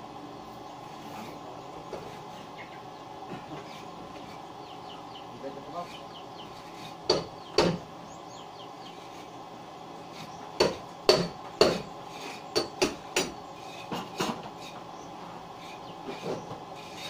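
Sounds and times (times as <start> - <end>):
hard objects knocking: 7.0 - 7.8.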